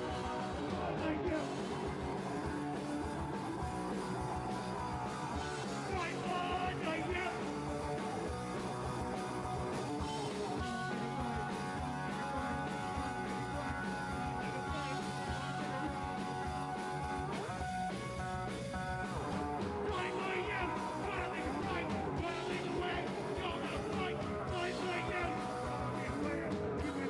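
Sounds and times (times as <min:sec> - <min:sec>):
bass guitar: 0:00.0 - 0:27.0
drums: 0:00.0 - 0:27.0
electric guitars: 0:00.0 - 0:27.0.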